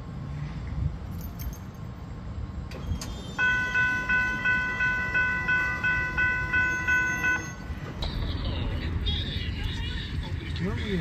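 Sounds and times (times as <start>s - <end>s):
railroad crossing bell ringing: 3.4s - 7.9s
low rumble: 7.6s - 11.0s.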